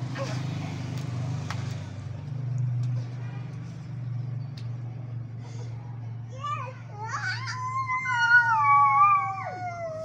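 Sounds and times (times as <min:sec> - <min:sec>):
vehicle engine humming: 0:00.0 - 0:10.0.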